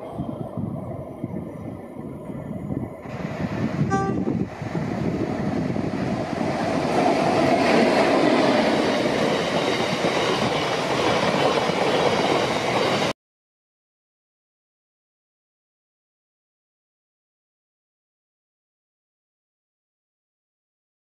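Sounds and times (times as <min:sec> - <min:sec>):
train wheels on rails: 0:00.0 - 0:13.2
short pitched tone: 0:03.9 - 0:04.4.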